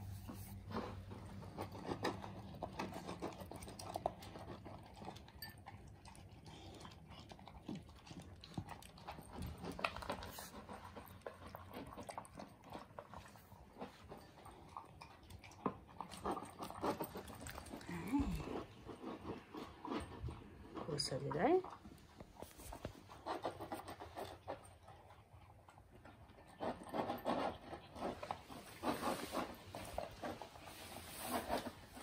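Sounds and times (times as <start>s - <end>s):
dogs crunching dry kibble: 0.0s - 32.0s.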